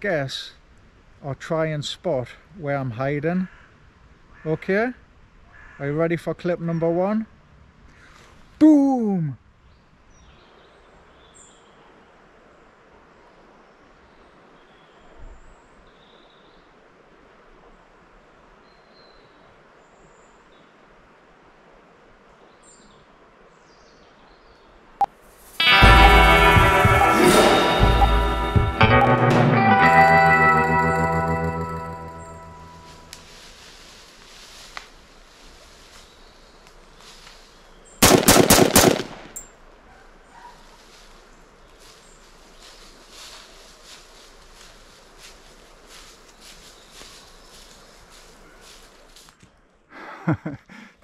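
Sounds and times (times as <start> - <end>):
faint woodland ambience: 0.0 - 51.0
loud guitar music: 25.6 - 33.3
sharp cracks: 38.0 - 39.5.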